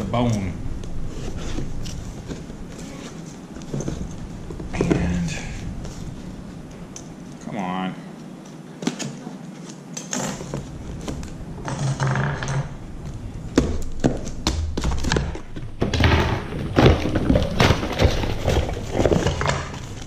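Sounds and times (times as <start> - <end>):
parts clattering: 0.0 - 7.2, 10.0 - 20.0
cardboard and plastic bag rustling: 1.0 - 6.9, 15.0 - 20.0.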